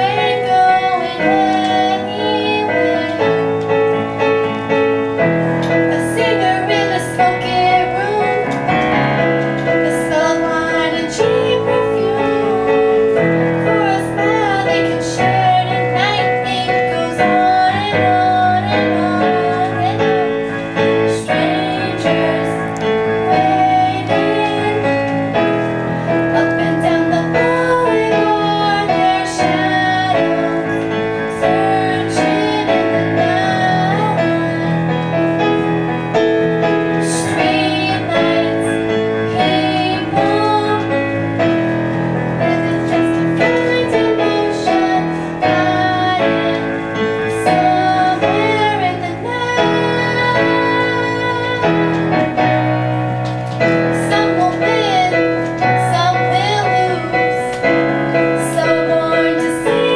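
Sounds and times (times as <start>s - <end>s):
girl singing: 0.0s - 4.4s, 5.6s - 35.8s, 36.8s - 41.6s, 42.2s - 53.1s, 53.7s - 59.9s
piano accompaniment: 0.0s - 59.9s.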